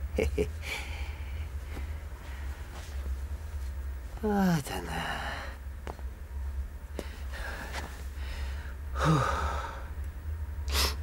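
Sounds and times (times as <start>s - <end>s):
steady low hum: 0.0s - 11.0s
man sighing: 9.0s - 9.9s.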